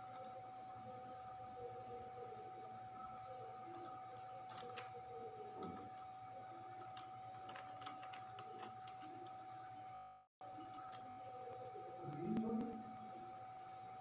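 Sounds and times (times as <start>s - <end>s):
electrical whine: 0.0s - 14.0s
low hum: 8.8s - 14.0s.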